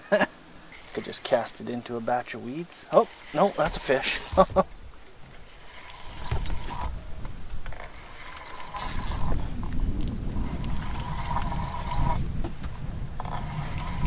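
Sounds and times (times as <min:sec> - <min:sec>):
fishing reel whirring and clicking: 0:00.7 - 0:01.5, 0:02.9 - 0:04.7, 0:05.4 - 0:12.3, 0:13.2 - 0:14.0.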